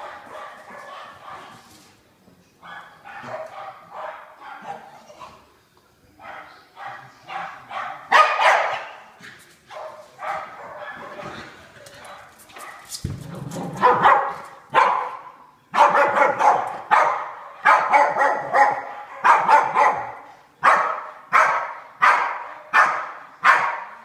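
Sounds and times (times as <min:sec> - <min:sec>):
dog barking in play: 0:00.0 - 0:01.7, 0:06.2 - 0:09.1, 0:09.7 - 0:11.4, 0:13.6 - 0:24.0.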